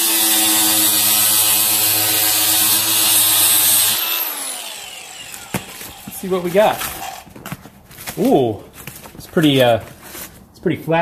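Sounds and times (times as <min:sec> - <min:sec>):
angle grinder motor whine: 0:00.0 - 0:07.3
grinder disc hissing on cardboard: 0:05.1 - 0:07.3.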